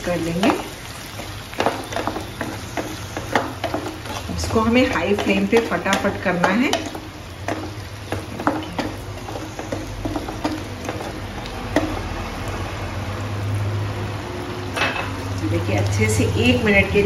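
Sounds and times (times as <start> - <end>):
sauce sizzling: 0.0 - 17.0
spatula scraping wok: 0.0 - 17.0
spatula knocking against pan: 1.6 - 12.0.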